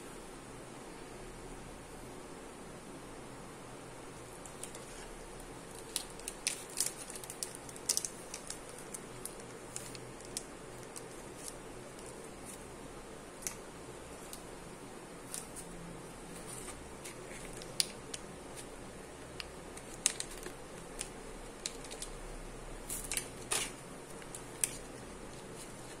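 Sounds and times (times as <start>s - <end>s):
plastic wrapper crinkling: 4.3s - 12.7s, 15.2s - 26.0s.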